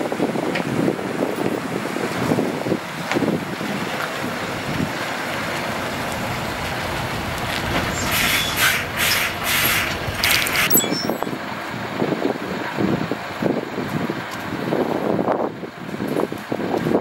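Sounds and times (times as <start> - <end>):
diesel truck engine running: 2.9 - 10.7
air brake hissing bursts: 7.8 - 10.7.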